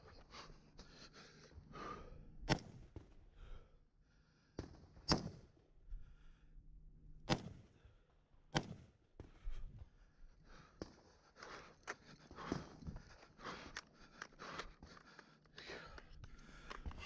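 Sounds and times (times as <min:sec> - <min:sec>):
knocks and rustling of movement: 0:08.6 - 0:17.0.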